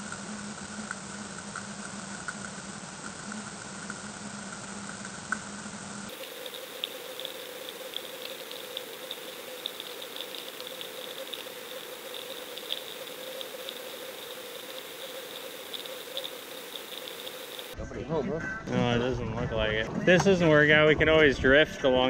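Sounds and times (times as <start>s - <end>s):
crackle of sharp clicks: 0.0s - 5.5s, 6.1s - 17.8s
low hum: 0.0s - 17.8s
underwater hiss: 6.0s - 17.8s.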